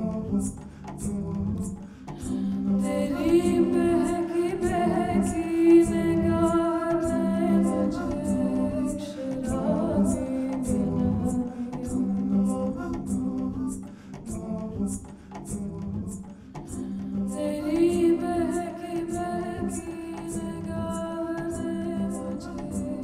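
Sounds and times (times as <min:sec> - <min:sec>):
double bass: 0:00.0 - 0:08.9, 0:09.5 - 0:18.5, 0:19.1 - 0:23.0
woman singing long notes: 0:02.2 - 0:13.5, 0:16.7 - 0:23.0.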